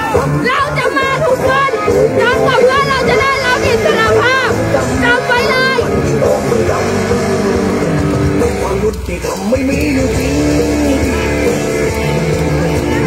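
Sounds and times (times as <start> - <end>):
song with singing voice: 0.0 - 13.0.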